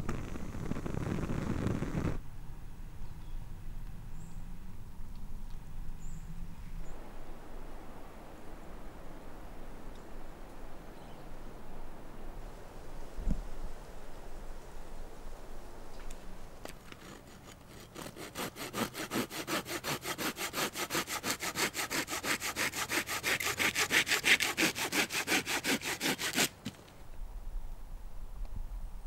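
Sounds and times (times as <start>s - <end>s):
hand saw cutting branch: 16.6s - 26.8s.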